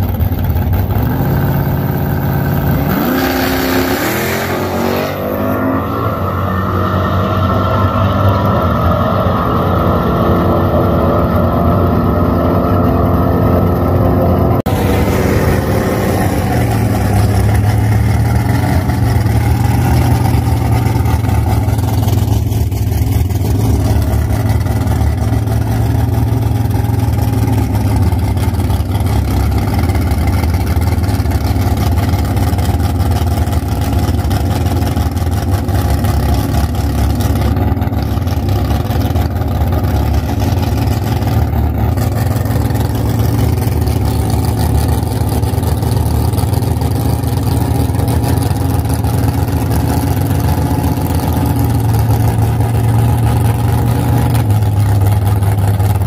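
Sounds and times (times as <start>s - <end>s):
car engine idling: 0.0s - 4.0s, 10.4s - 56.0s
distant cars running: 2.0s - 56.0s.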